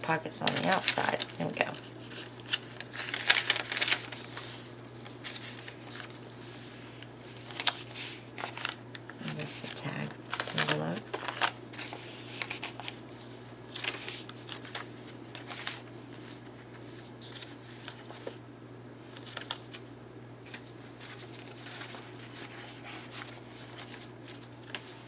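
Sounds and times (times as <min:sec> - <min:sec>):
steady low hum: 0:00.0 - 0:25.0
paper cards rustling: 0:00.4 - 0:18.4, 0:19.1 - 0:25.0.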